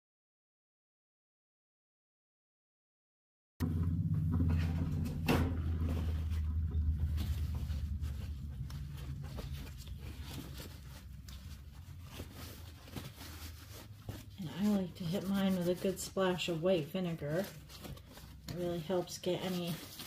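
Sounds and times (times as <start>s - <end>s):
low steady hum: 3.6s - 20.0s
paper towel rustling and rubbing: 5.6s - 20.0s.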